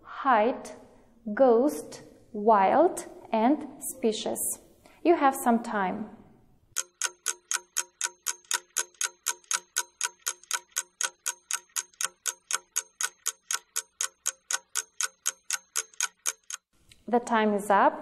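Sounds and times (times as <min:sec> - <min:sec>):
clock ticking: 0:06.7 - 0:16.7.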